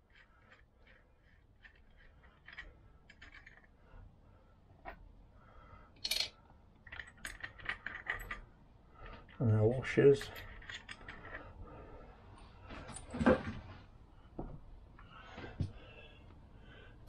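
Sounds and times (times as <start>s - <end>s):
small metal clicks and clinks: 6.0s - 8.4s.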